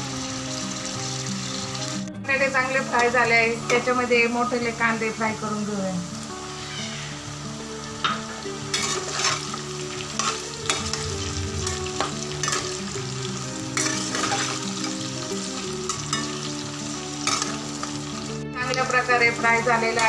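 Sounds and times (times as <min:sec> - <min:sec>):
vegetables sizzling in hot oil: 0:00.0 - 0:20.0
metal spatula scraping pan: 0:08.1 - 0:13.2, 0:13.8 - 0:15.1.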